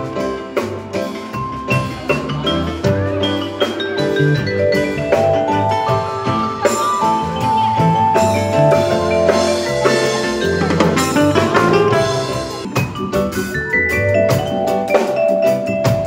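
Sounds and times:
live band music: 0.0s - 16.0s
vibraphone notes: 0.0s - 16.0s.

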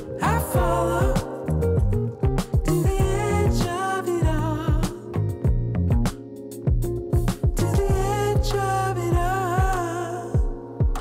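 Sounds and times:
wavering melody line: 0.0s - 4.8s
deep kick drum: 0.6s - 6.1s, 6.7s - 9.8s, 10.4s - 11.0s.

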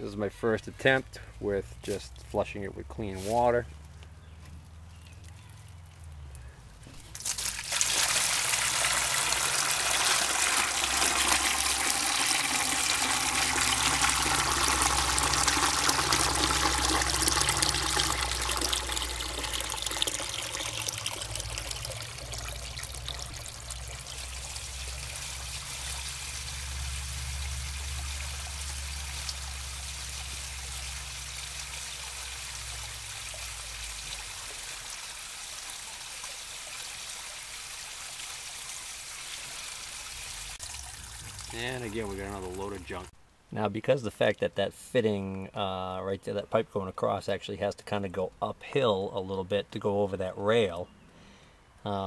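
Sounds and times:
water gushing into a bucket: 7.1s - 43.1s.

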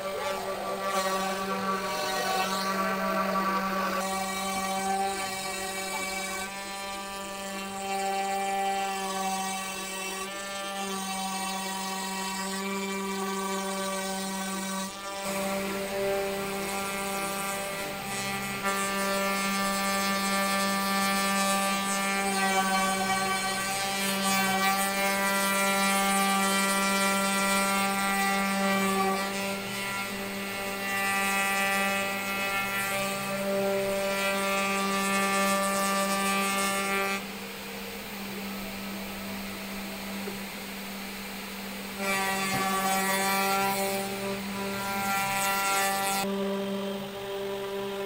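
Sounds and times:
steady hum: 0.0s - 10.9s, 14.0s - 48.0s
bit cutting into wood: 0.0s - 37.4s, 41.9s - 48.0s
router spindle whine: 0.0s - 48.0s.

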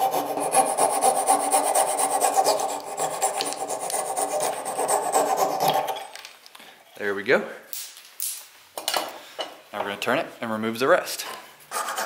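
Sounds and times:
fret saw cutting through wood: 0.0s - 6.0s.

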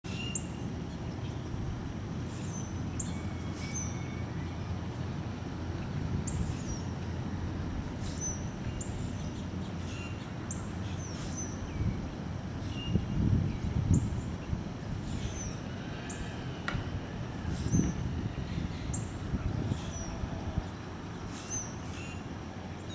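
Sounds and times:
birds chipping and whistling: 0.1s - 1.5s, 2.3s - 4.7s, 8.0s - 14.3s, 15.0s - 16.3s, 17.5s - 22.9s.

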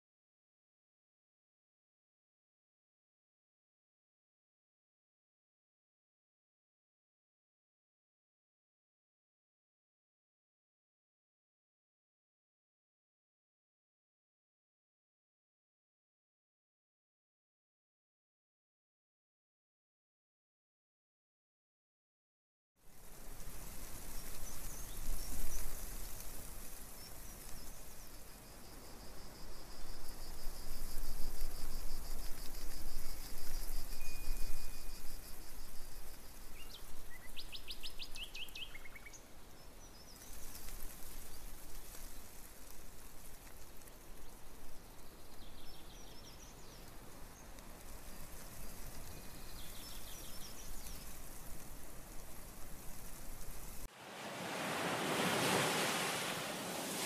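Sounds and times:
steady hiss and low hum: 22.9s - 57.0s.

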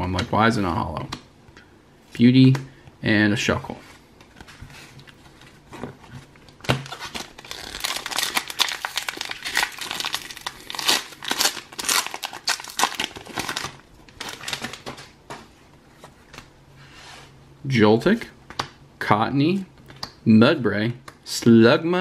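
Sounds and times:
foil wrapper tearing and crinkling: 6.8s - 15.0s.

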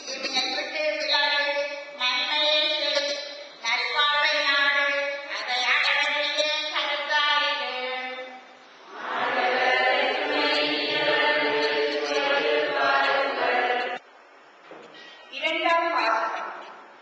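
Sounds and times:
congregation and choir chanting: 8.9s - 14.0s.

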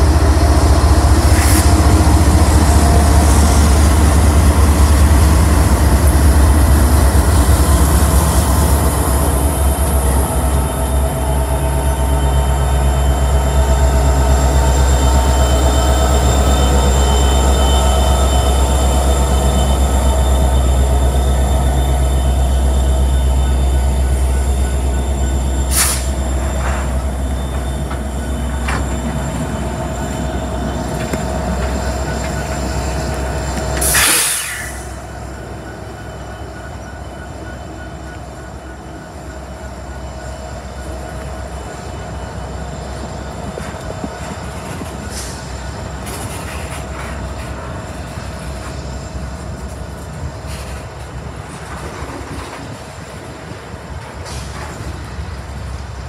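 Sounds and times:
diesel locomotive rumble: 0.0s - 56.0s
faint wheel squeal: 8.3s - 49.4s.

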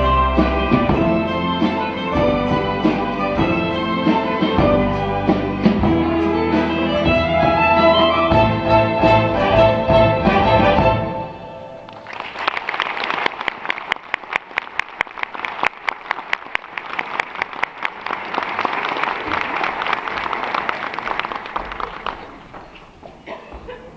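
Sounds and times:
string orchestra chord: 0.0s - 11.9s
audience applauding: 11.9s - 23.0s.

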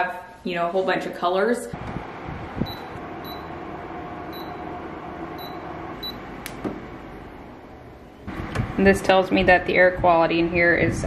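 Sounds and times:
fan whirring: 1.5s - 11.0s
short high beeps: 5.4s - 6.2s.

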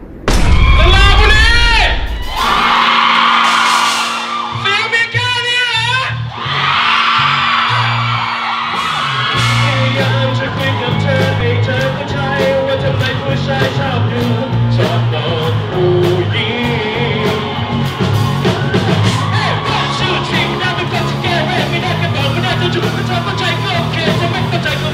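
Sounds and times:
live rock band playing: 2.2s - 24.9s
person singing: 9.3s - 17.7s, 19.3s - 24.9s.

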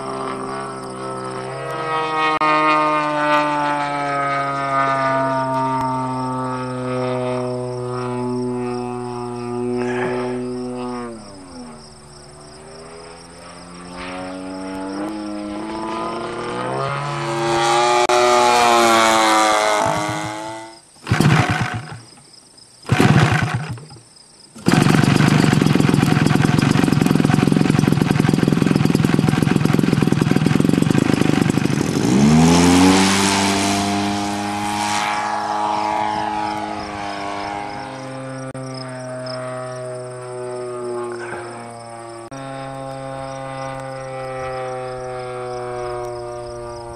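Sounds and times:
model plane engine starting: 0.0s - 22.2s, 22.8s - 24.0s, 24.6s - 46.9s
model airplane engine droning: 0.0s - 46.9s.

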